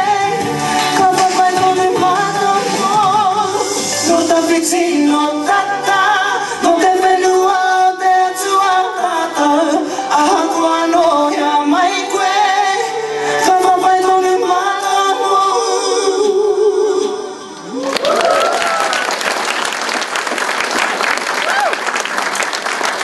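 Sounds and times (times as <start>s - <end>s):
woman singing into microphone: 0.0s - 17.6s
audience applause and cheers: 17.6s - 23.0s.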